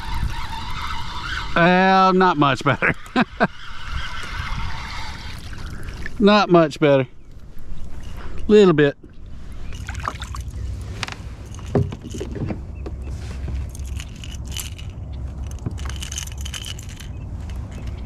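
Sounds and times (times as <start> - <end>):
steady low rumble: 5.4 - 18.0
fishing tackle clattering and jingling: 9.6 - 18.0.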